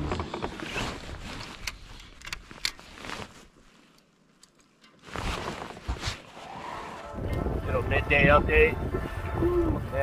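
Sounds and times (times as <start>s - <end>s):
wind buffeting microphone: 7.0s - 10.0s.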